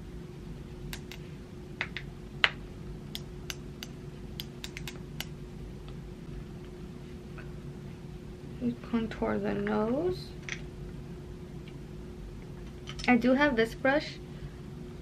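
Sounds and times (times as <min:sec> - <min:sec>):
steady low hum: 0:00.0 - 0:15.0
light irregular clicks: 0:03.1 - 0:06.0.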